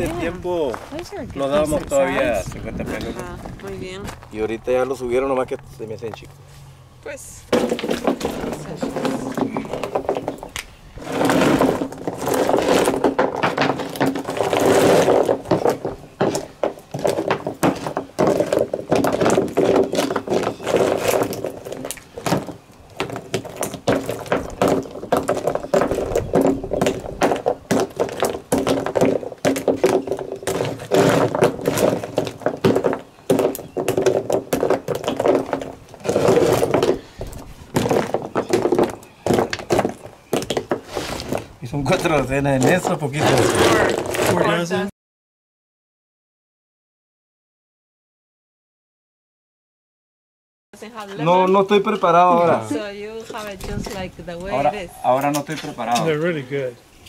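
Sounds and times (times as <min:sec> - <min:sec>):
oyster shells clacking on wood: 0:07.5 - 0:10.7, 0:11.6 - 0:42.8.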